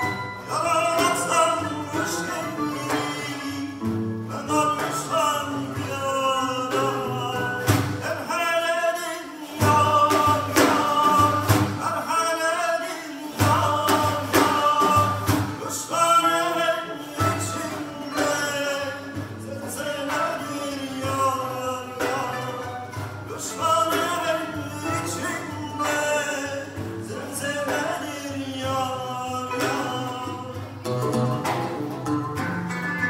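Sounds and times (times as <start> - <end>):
man singing: 0.0 - 32.1
plucked string instruments: 0.0 - 33.0
frame drum strokes: 9.6 - 12.2, 13.3 - 33.0.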